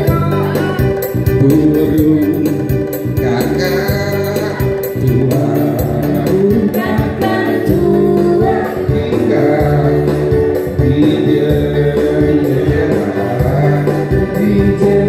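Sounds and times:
electronic keyboard accompaniment: 0.0s - 15.0s
man singing into microphone: 0.0s - 15.0s
steady beat: 0.0s - 15.0s.

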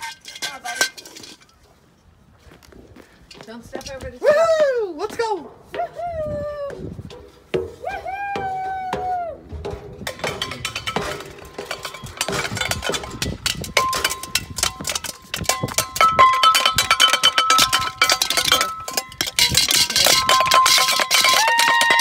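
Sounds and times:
metallic banging and clanging: 0.0s - 1.6s, 7.0s - 22.0s
steady ringing tones: 10.0s - 21.4s.

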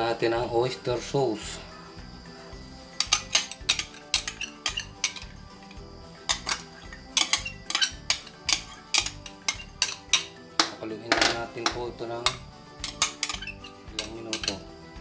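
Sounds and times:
metal spoon clinking on glass bowl: 3.0s - 5.3s, 6.3s - 14.6s.

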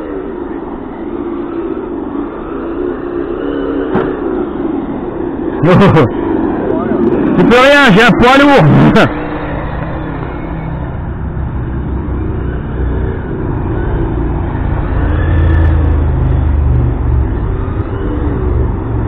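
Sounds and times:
rc car running on asphalt: 0.0s - 19.0s
simulated engine revs: 8.5s - 19.0s.

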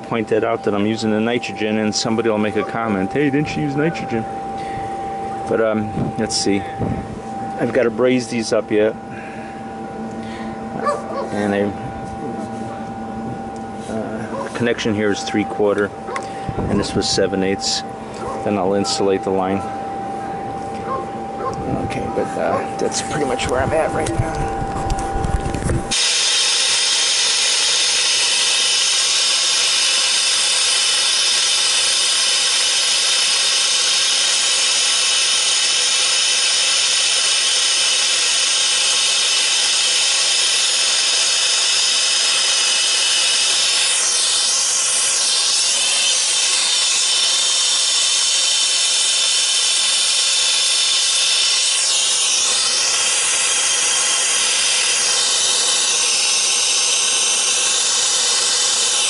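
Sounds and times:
torch flame hissing: 25.3s - 59.0s.

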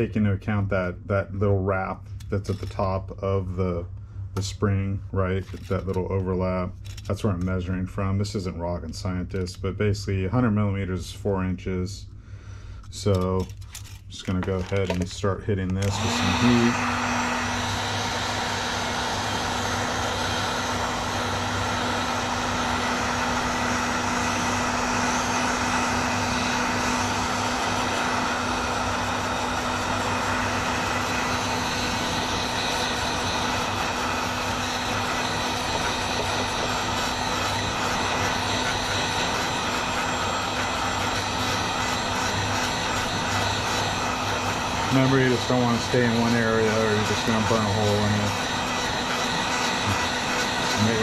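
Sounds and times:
heat gun blowing air: 14.4s - 51.0s.

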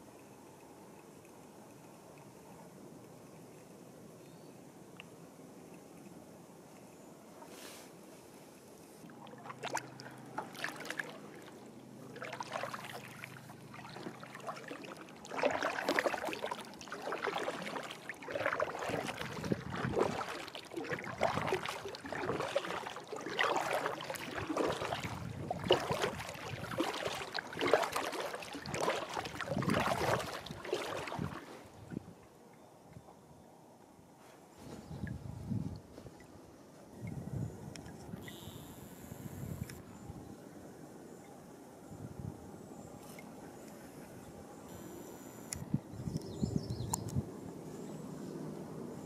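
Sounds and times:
paddle splashing in water: 9.0s - 32.1s.

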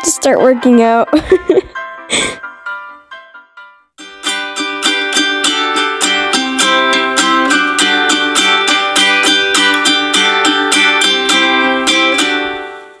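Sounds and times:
plucked string tune: 4.0s - 13.0s.

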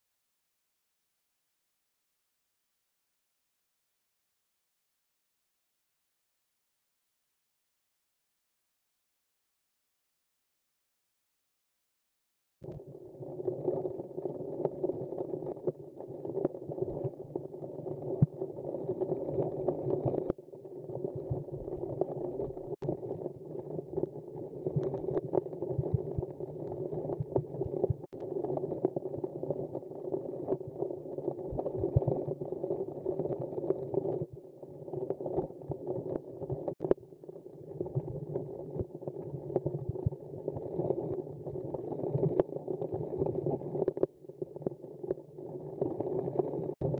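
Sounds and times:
muffled underwater rumble: 12.6s - 46.9s.

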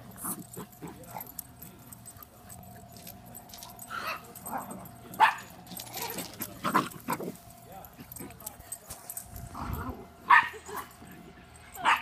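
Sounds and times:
puppies yipping and barking: 10.1s - 12.0s.

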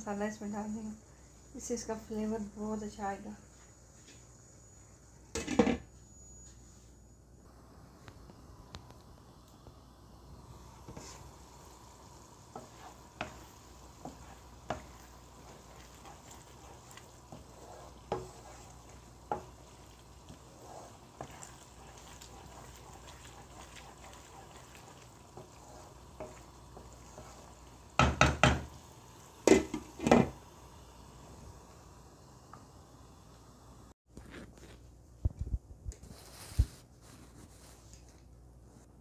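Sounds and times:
sauce bubbling: 8.8s - 29.6s
spatula scraping metal wok: 10.8s - 28.7s.

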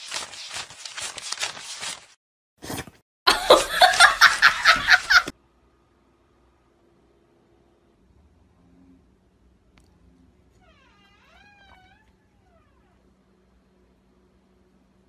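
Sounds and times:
person laughing hard: 3.3s - 5.3s.

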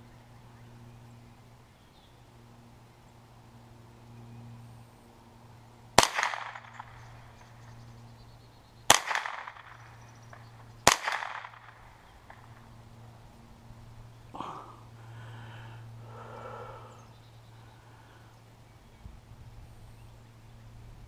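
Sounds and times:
rifle shots with echo: 6.0s - 7.5s, 8.9s - 12.6s.

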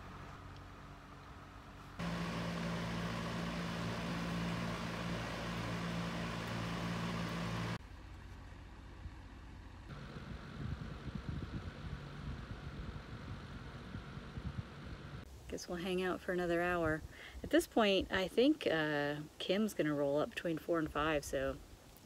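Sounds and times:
electric fan whirring: 2.0s - 7.8s.

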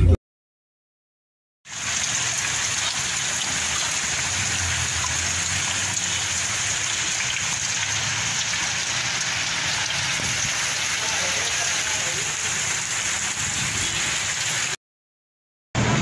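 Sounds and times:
heavy rain on flooded street: 1.7s - 14.8s.

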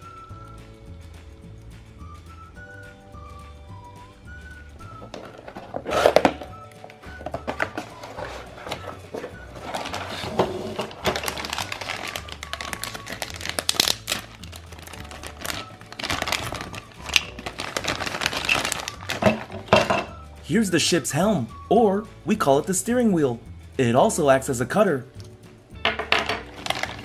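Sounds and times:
background music: 0.0s - 27.0s
plastic bags crinkling: 7.4s - 20.0s, 26.3s - 27.0s.

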